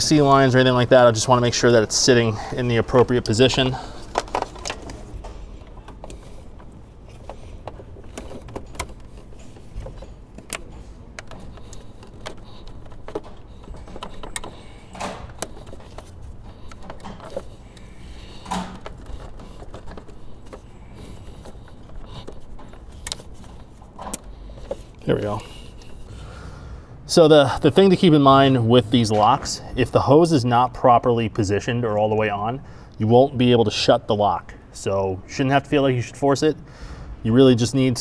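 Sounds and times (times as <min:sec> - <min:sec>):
low steady hum: 0:00.0 - 0:38.0
clicks and knocks of plastic line: 0:04.0 - 0:25.0.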